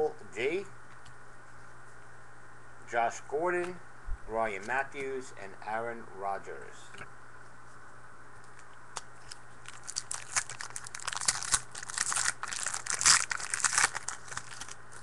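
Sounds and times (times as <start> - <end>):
foil wrapper crinkling: 9.2 - 15.0.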